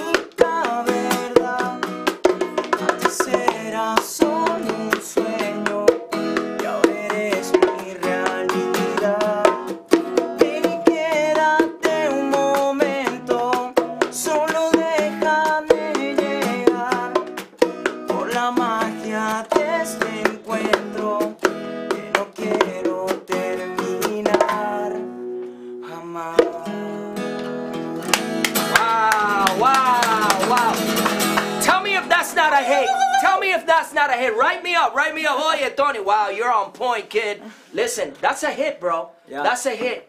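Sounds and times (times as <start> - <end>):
bongo hits: 0.0 - 12.0, 13.0 - 18.9, 19.5 - 24.7, 26.4 - 26.6
man singing: 0.0 - 25.2, 25.8 - 27.6, 28.6 - 37.5
acoustic guitar strumming: 0.0 - 36.6.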